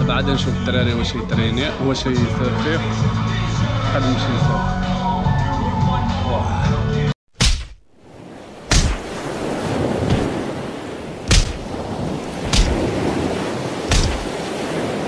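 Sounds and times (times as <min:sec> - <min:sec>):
sharp impact hits: 0:07.4 - 0:07.9, 0:08.7 - 0:09.2, 0:11.3 - 0:11.7, 0:12.5 - 0:12.9, 0:13.9 - 0:14.4.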